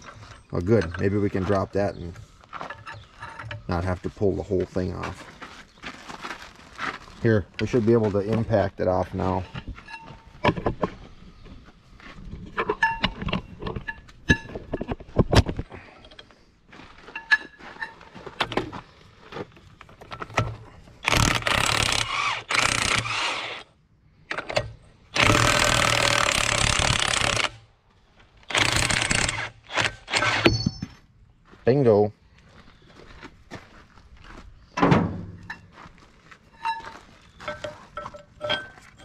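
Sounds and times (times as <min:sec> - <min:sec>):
impact wrench hammering: 0:24.6 - 0:27.6, 0:28.5 - 0:30.9
metallic tool clicks and knocks: 0:37.5 - 0:39.0.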